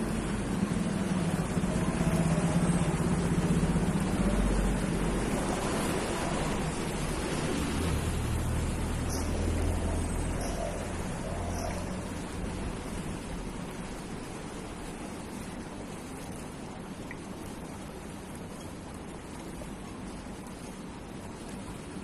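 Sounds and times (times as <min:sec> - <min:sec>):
deeper engine hum: 0:00.0 - 0:14.9
vehicle engines humming: 0:00.0 - 0:15.6.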